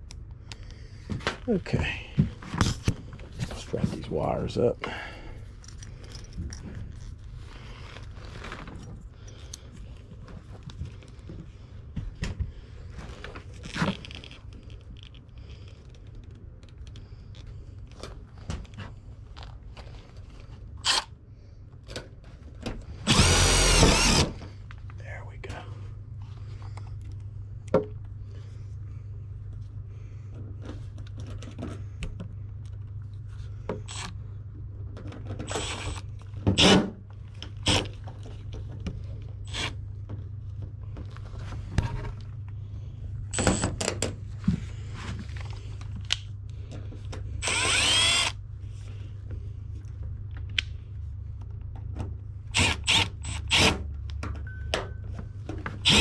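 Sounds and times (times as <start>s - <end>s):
steady low hum: 0.0s - 56.0s
cordless drill driving screws: 23.1s - 24.4s, 35.5s - 36.0s, 39.5s - 39.8s, 47.4s - 48.4s, 52.5s - 53.8s.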